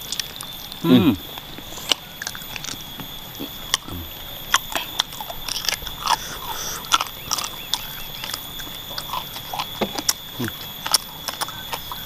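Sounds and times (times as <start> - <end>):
person chewing and crunching food: 0.0 - 12.0
mouth clicks and smacks: 3.4 - 12.0.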